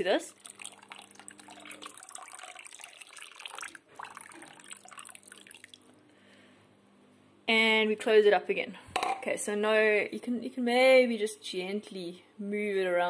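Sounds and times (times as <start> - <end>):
liquid trickling into a pot: 0.3 - 6.0.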